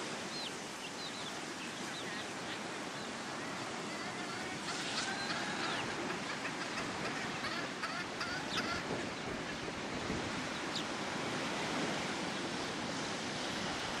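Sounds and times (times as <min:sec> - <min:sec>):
ocean surf rushing: 0:00.0 - 0:14.0
wind noise: 0:06.8 - 0:14.0.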